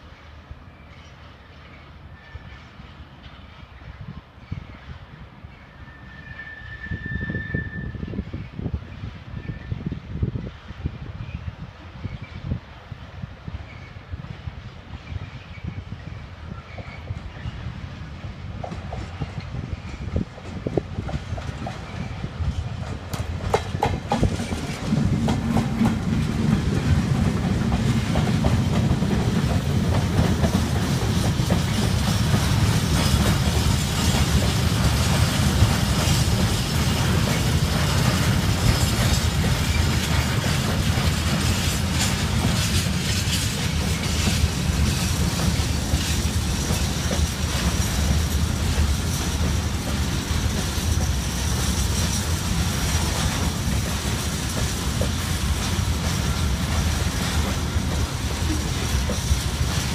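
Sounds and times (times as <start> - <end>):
train rumbling past: 0.0 - 59.9
wheels clicking over rail joints: 22.8 - 59.9.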